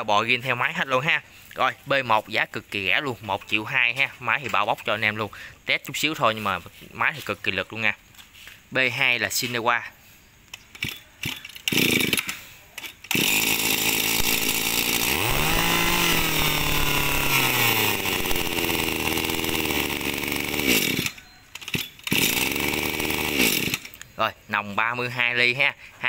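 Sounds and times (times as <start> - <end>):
brush-cutter engine running: 13.0 - 24.0.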